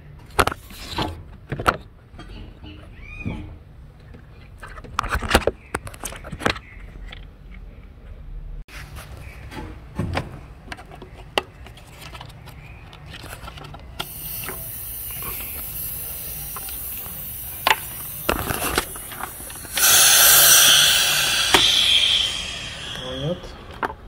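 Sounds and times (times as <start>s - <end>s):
steady hiss: 14.0s - 24.0s
loud rush of noise: 19.3s - 24.0s.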